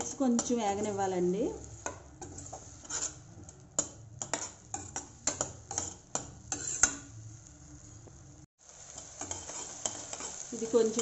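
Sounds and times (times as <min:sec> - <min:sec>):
metal spoon scraping steel pan: 0:01.8 - 0:07.1, 0:09.0 - 0:10.4.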